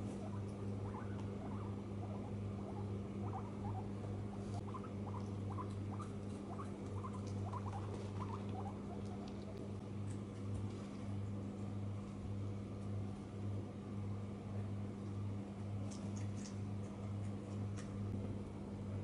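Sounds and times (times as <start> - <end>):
guinea pig squeaking: 0.0 - 9.8
steady low hum: 0.0 - 19.0.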